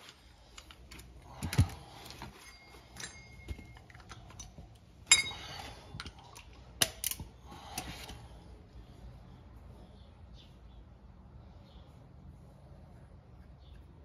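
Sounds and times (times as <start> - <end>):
tools clicking and tapping: 0.0 - 8.2
ringing metal clink: 2.4 - 5.7.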